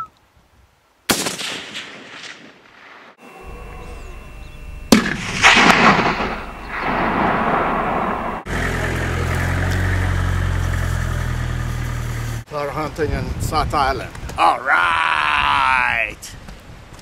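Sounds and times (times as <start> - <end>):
rifle shot: 1.1 - 3.2, 4.9 - 8.5
vehicle engine humming: 3.2 - 12.5
rolling rumble: 3.5 - 12.4.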